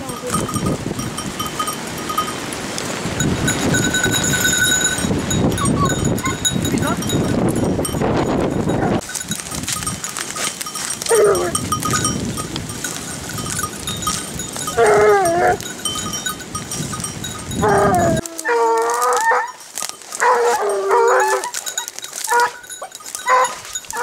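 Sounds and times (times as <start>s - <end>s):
hounds baying: 4.8s - 6.6s, 10.4s - 12.1s, 14.6s - 15.8s, 17.5s - 24.0s.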